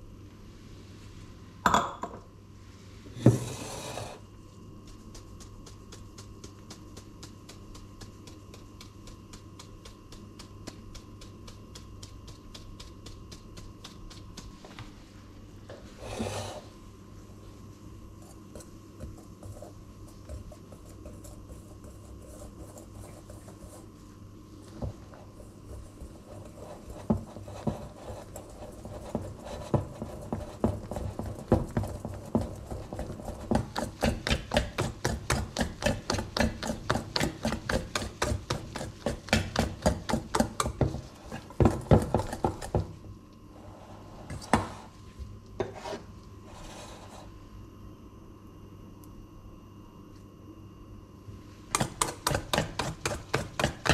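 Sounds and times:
flour sieve ticking: 4.8 - 14.6
whisk beating in metal bowl: 4.8 - 14.6, 25.0 - 42.9, 51.8 - 53.9.

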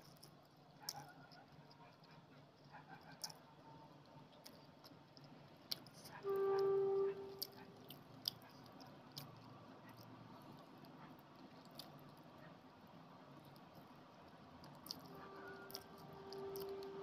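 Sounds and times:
soft chewing: 0.0 - 17.0
short steady tone: 6.3 - 7.4.

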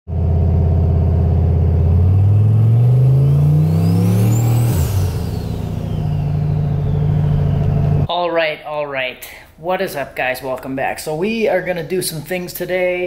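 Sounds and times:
vehicle engine accelerating: 0.1 - 8.1
thin high whine: 3.0 - 8.1.

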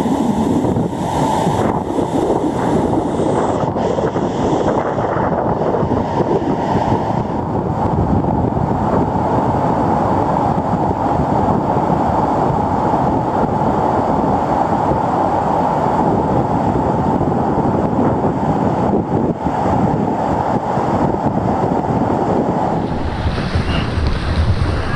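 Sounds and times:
whitewater rapid rushing: 22.5 - 24.9.

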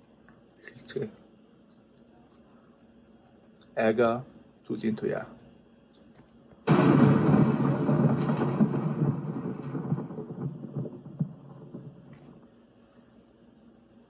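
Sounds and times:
thunder-like rumble with crackling: 6.7 - 12.6.

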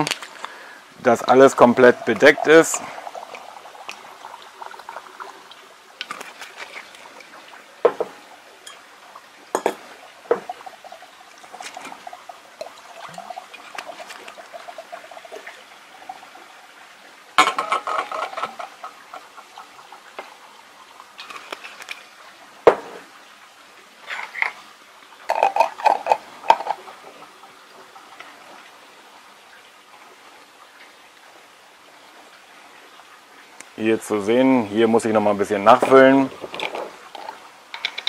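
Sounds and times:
liquid pouring into a jar: 0.0 - 8.8, 9.5 - 16.6, 17.4 - 20.0, 25.3 - 28.2, 35.7 - 38.0
glass and utensils clinking: 7.8 - 8.8, 9.5 - 10.5, 17.4 - 19.0, 25.3 - 26.8.

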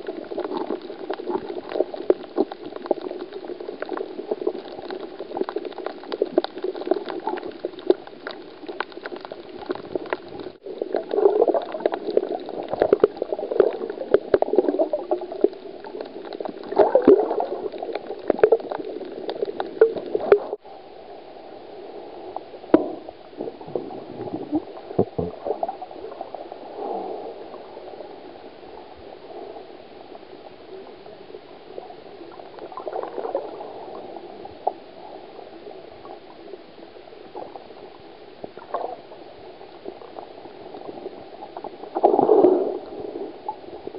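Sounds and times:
underwater bubbling and gurgling: 0.0 - 43.9
sharp crackling clicks: 15.4 - 20.6.

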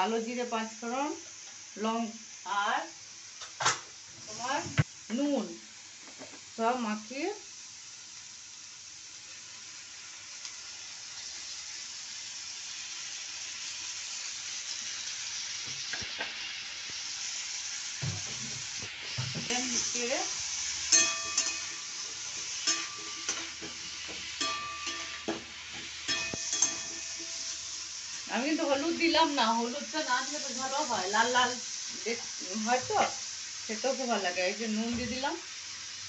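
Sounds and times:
hot oil sizzling: 0.0 - 36.0
metal spatula scraping pan: 20.9 - 27.6.

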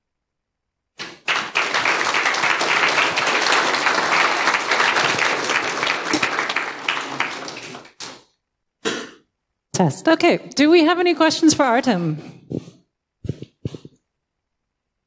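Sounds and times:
audience applauding: 1.0 - 8.3.

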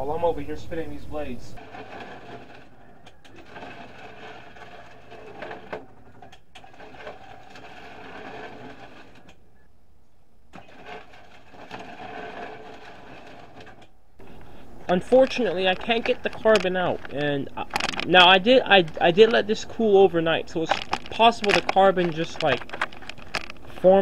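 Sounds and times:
electric motor running: 1.6 - 9.4, 10.6 - 14.4
clicks and knocks: 15.2 - 19.4, 20.6 - 23.9.

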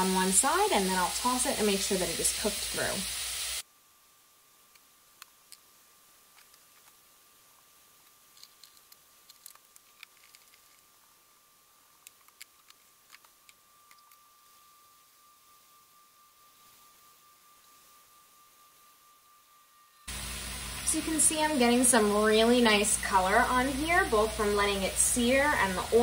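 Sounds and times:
chicken searing in hot oil: 0.0 - 3.7, 20.1 - 26.0
faint high-pitched tone: 13.3 - 26.0.

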